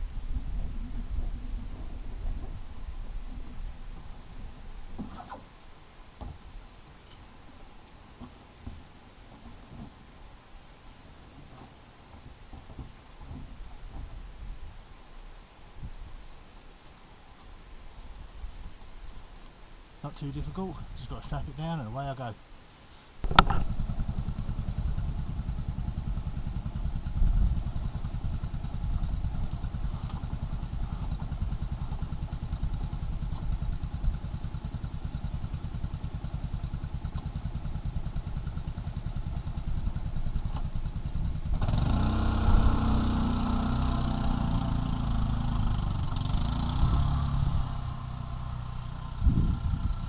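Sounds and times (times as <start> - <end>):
atv engine idling and revving: 23.3 - 50.0.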